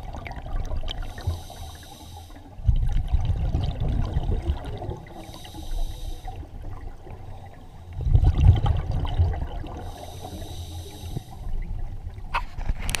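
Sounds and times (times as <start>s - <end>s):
exhaled bubbles burbling: 0.0s - 1.4s, 2.6s - 5.4s, 6.4s - 10.0s
regulator hissing inhale: 1.0s - 2.6s, 5.1s - 6.6s, 7.4s - 8.0s, 9.8s - 11.6s.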